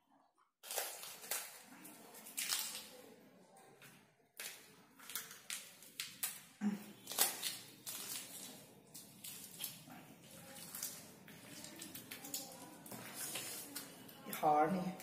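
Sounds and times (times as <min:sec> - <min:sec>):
fingers squishing fruit: 0:04.4 - 0:14.2.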